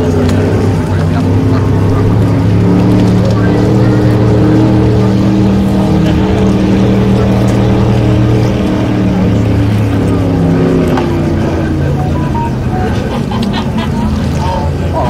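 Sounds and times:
boat engines passing at speed: 0.0s - 15.0s.

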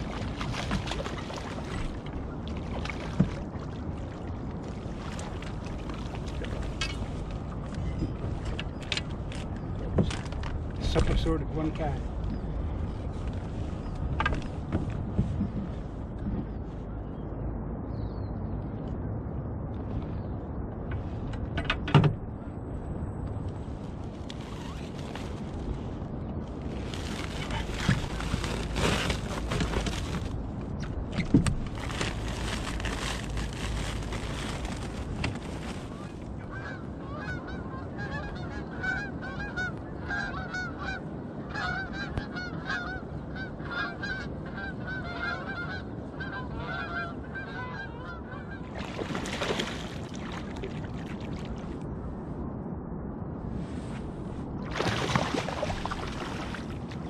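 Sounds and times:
geese honking: 36.5s - 48.7s.

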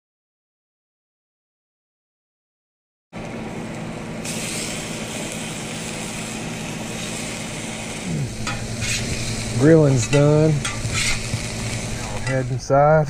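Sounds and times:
low mechanical hum: 3.2s - 13.0s
fish sizzling on griddle: 4.2s - 12.6s.

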